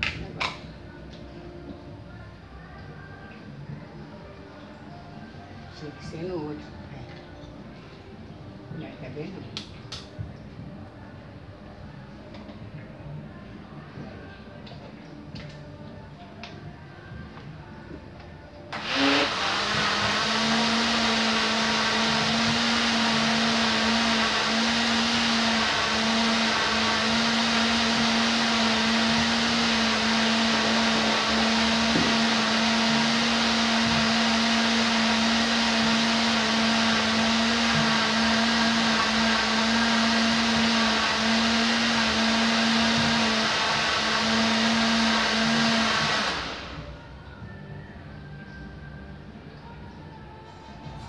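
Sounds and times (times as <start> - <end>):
electric blender running: 18.7 - 46.9.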